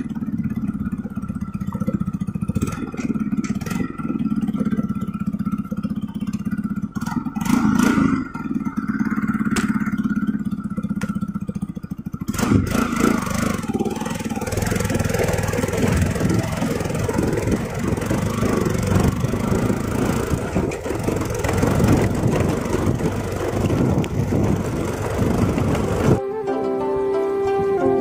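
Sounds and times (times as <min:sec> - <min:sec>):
motorcycle on cobblestones: 0:00.0 - 0:28.0
flute music: 0:26.2 - 0:28.0.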